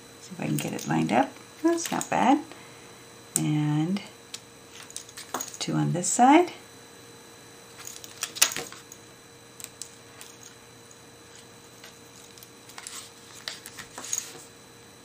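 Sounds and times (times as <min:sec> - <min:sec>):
paper rustling: 0:12.7 - 0:14.5.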